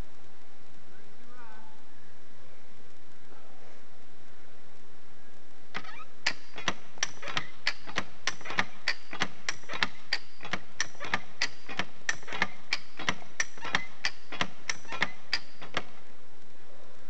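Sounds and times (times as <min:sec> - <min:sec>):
hand winch ratchet clicking: 0:05.8 - 0:16.0.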